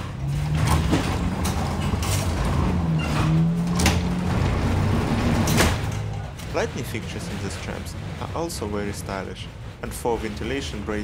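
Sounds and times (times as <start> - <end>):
door motor humming: 0.0 - 8.5
door mechanism clanking: 0.2 - 8.5.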